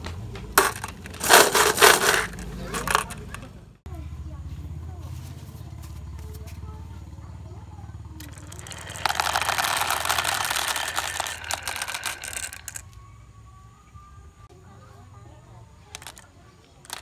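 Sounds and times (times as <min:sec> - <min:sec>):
marbles rattling down wooden slopes: 0:00.6 - 0:03.4, 0:08.2 - 0:12.9, 0:15.9 - 0:17.0.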